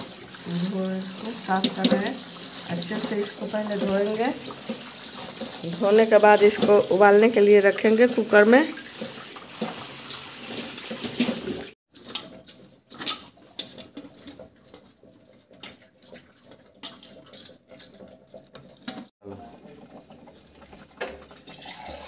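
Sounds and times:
tap water running: 0:00.0 - 0:11.8, 0:18.0 - 0:22.0.

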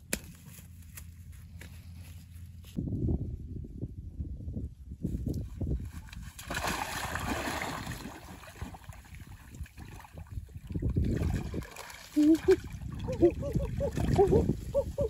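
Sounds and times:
water splashing and sloshing: 0:05.6 - 0:15.0.

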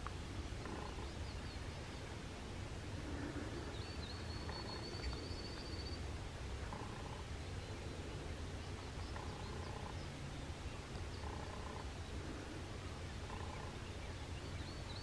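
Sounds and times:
low steady rumble: 0:00.0 - 0:15.0
faint turkey gobbling: 0:06.6 - 0:07.3, 0:09.0 - 0:10.0, 0:11.2 - 0:12.6, 0:13.2 - 0:13.8.

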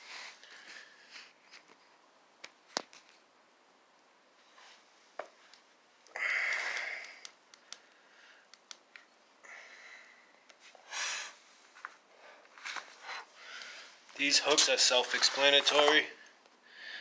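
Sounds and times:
person breathing and sniffing: 0:06.1 - 0:07.2, 0:09.5 - 0:11.6.

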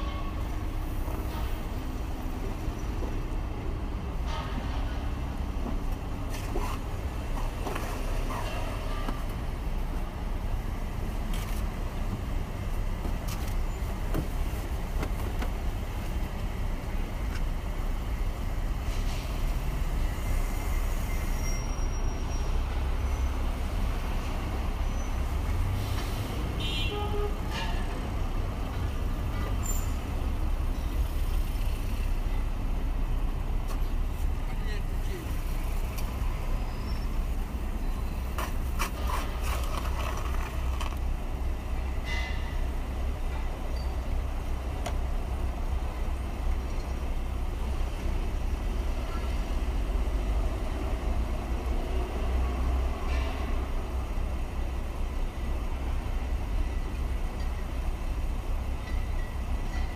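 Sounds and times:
road traffic rumble: 0:00.0 - 0:59.9
car horn toot: 0:26.6 - 0:27.4.

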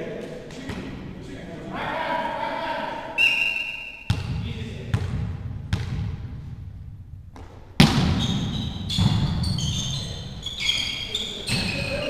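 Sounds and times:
volleyball slaps echoing: 0:04.0 - 0:06.6, 0:07.3 - 0:09.5
short high squeaks: 0:08.2 - 0:12.0.

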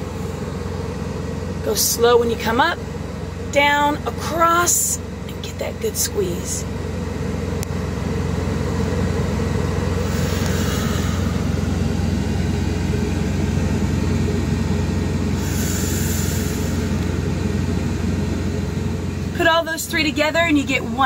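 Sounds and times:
low rumble of running machinery: 0:00.0 - 0:21.0
soft hissing exhalations: 0:10.0 - 0:11.7, 0:15.4 - 0:17.1.

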